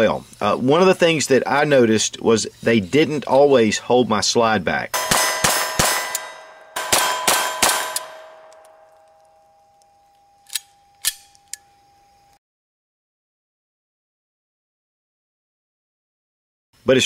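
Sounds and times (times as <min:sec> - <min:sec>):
pistol shots: 0:05.0 - 0:08.7
steady ringing tone: 0:05.0 - 0:12.4.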